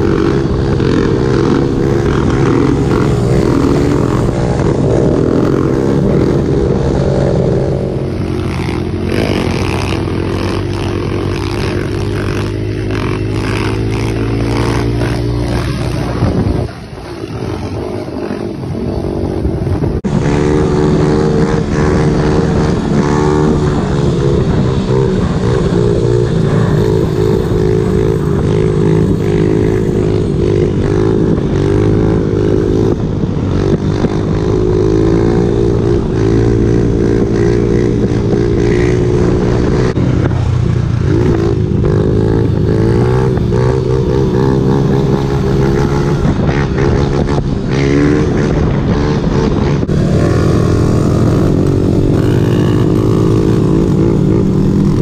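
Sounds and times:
motorbike engine under throttle: 0.0s - 55.0s
motorbike passing by: 0.0s - 55.0s.

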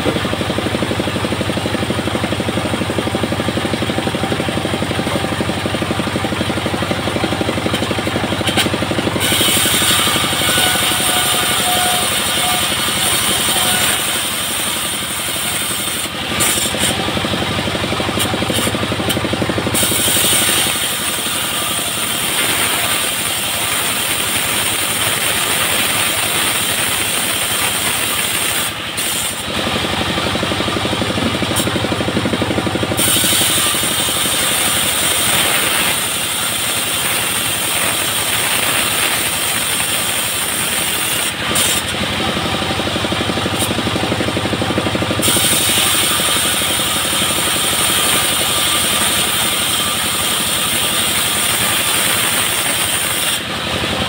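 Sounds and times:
saw cutting hiss: 0.0s - 42.6s, 44.6s - 54.0s
band sawmill engine running: 0.0s - 54.0s.

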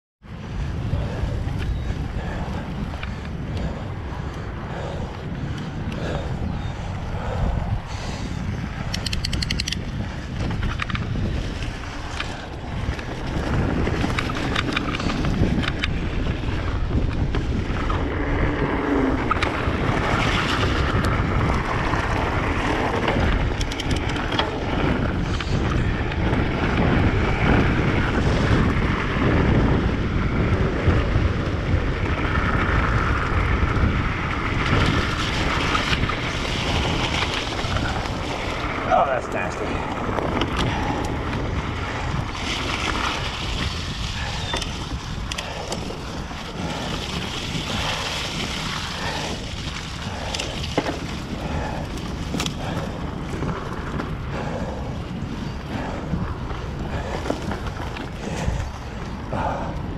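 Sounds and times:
bike tyre rumble on dirt: 0.2s - 59.9s
wind buffeting microphone: 0.2s - 59.9s
bike clicks and knocks: 8.7s - 59.9s.

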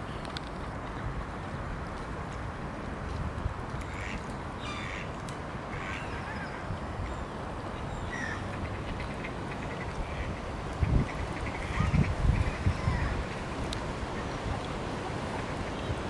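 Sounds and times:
wind rumble on microphone: 0.0s - 16.0s
ducks and gulls calling: 3.9s - 5.1s, 5.7s - 7.0s, 7.8s - 16.0s.

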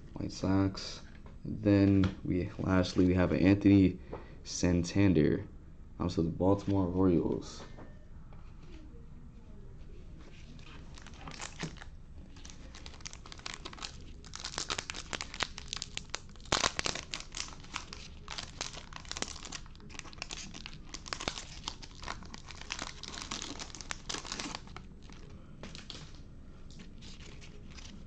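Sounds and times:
foil wrapper tearing and crinkling: 10.9s - 26.2s.

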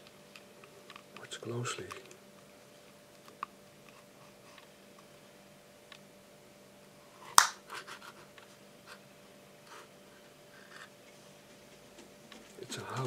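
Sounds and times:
finger snap: 7.3s - 7.6s.

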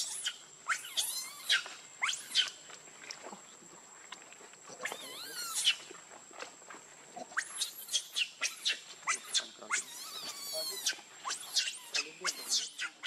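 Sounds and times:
baby monkey squealing: 0.0s - 2.6s, 4.8s - 5.8s, 7.3s - 13.0s.

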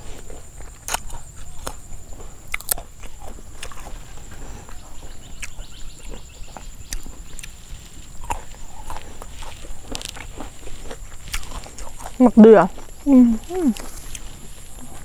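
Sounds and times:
fruit and leaves tearing: 0.0s - 1.9s, 2.5s - 4.3s, 6.2s - 15.0s
crisp clicks and crunches: 0.6s - 1.9s, 8.2s - 12.2s.

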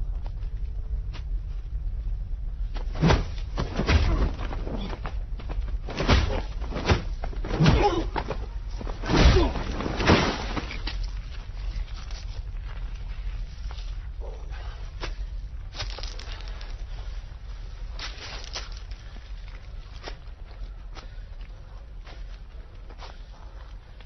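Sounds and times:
punch impacts: 3.0s - 4.6s, 5.9s - 8.2s, 9.0s - 10.6s
men grunting: 7.5s - 8.4s, 9.0s - 9.8s.

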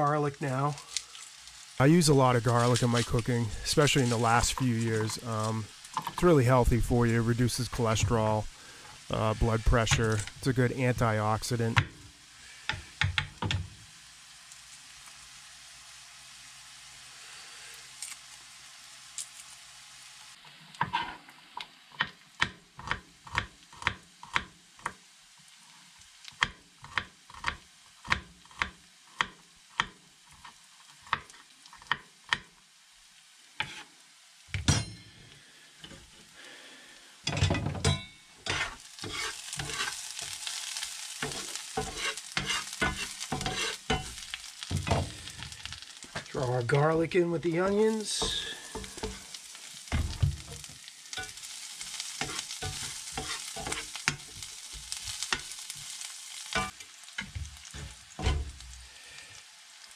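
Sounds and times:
onions sizzling in a pan: 0.0s - 59.9s
utensil scraping a pan: 20.8s - 21.2s, 33.6s - 33.9s, 38.4s - 40.6s, 41.2s - 45.8s, 48.0s - 49.3s, 49.9s - 55.9s.

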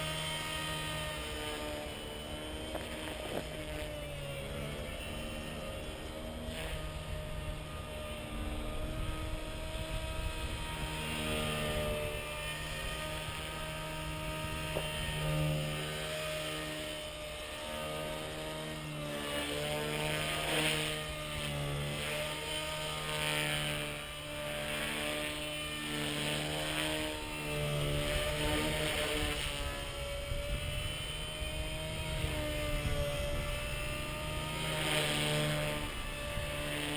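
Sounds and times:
rc helicopter motor humming: 0.0s - 36.9s
wind rumble on microphone: 6.5s - 15.9s, 27.0s - 36.9s.

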